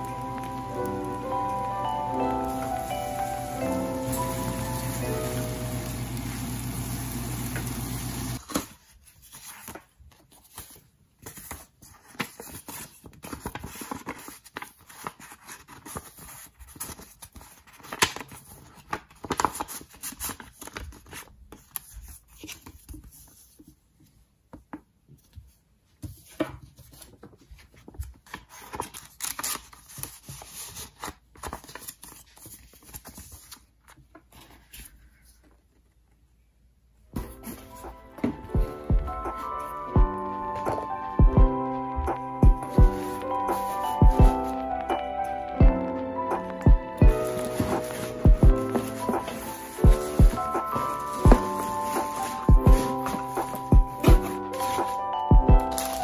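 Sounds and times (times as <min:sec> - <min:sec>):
fried rice sizzling in a pan: 0:02.5 - 0:08.4
paper rustling and crinkling: 0:08.4 - 0:36.2, 0:37.1 - 0:38.5, 0:39.1 - 0:45.6, 0:46.4 - 0:56.0.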